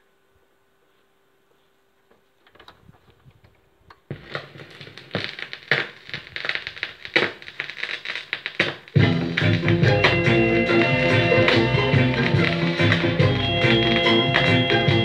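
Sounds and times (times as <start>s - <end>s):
vinyl record crackle and pops: 2.0s - 15.0s
reggae music: 9.0s - 15.0s.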